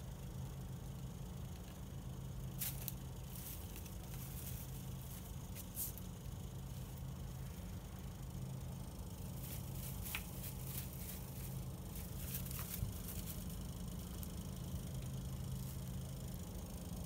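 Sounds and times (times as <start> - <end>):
steady low hum: 0.0 - 17.0
faint scratchy rustling: 2.6 - 6.1, 9.3 - 13.6.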